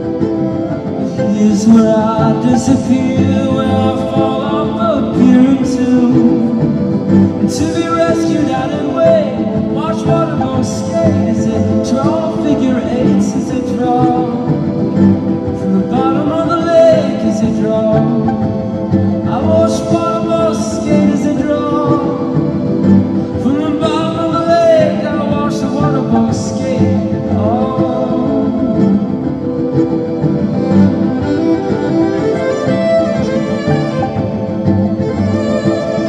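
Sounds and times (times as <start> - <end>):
instrumental backing: 0.0 - 36.0
plucked violin: 0.0 - 36.0
man singing: 1.0 - 29.4.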